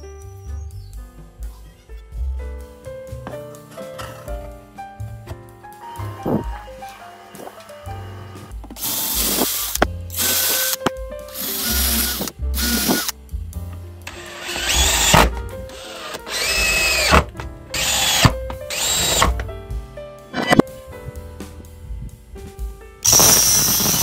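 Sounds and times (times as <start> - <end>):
drill driving screws: 7.3 - 13.1, 14.1 - 19.4, 23.1 - 24.0
electric drill boring into wood: 8.0 - 10.8, 11.4 - 13.1, 14.1 - 19.4, 23.1 - 24.0.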